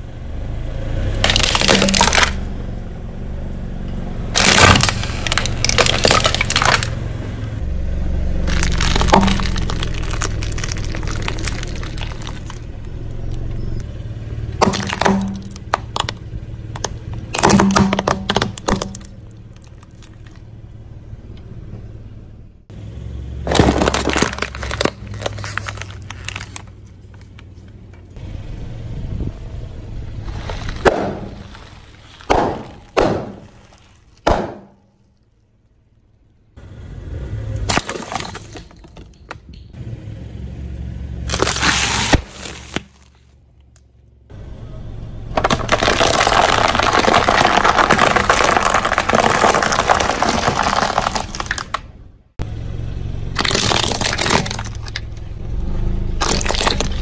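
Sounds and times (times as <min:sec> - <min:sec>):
tyre crushing plastic packaging: 0:01.2 - 0:02.4, 0:04.4 - 0:07.0, 0:08.5 - 0:12.9, 0:14.6 - 0:20.4, 0:23.5 - 0:27.4, 0:30.2 - 0:34.8, 0:37.7 - 0:39.1, 0:41.3 - 0:43.3, 0:45.4 - 0:51.8, 0:53.4 - 0:55.0, 0:56.2 - 0:57.0
low rumble: 0:23.4 - 0:36.6.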